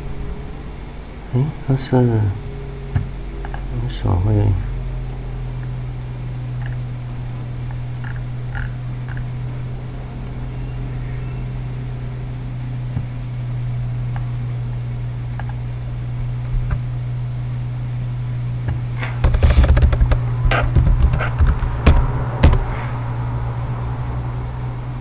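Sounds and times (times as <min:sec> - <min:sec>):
steady low hum: 0:00.0 - 0:25.0
computer keyboard typing: 0:19.0 - 0:22.8.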